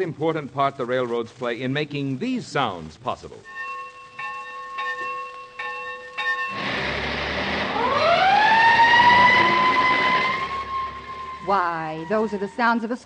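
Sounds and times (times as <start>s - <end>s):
school bell ringing: 3.5s - 13.0s
fire engine rumble: 6.4s - 12.7s
siren winding up: 6.5s - 12.8s.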